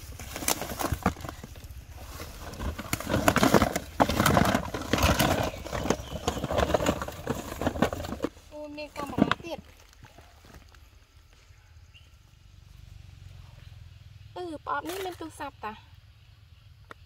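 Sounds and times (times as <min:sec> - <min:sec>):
cardboard box being handled: 0:00.0 - 0:10.6
small cardboard boxes clattering: 0:00.0 - 0:10.7.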